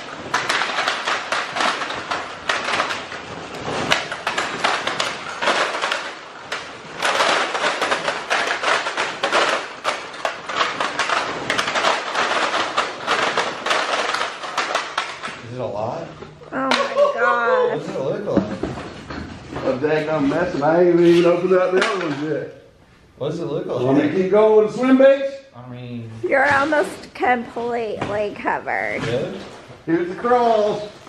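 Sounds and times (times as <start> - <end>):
plastic packs clattering onto floor: 0.0 - 16.0, 17.7 - 22.5, 27.9 - 31.0.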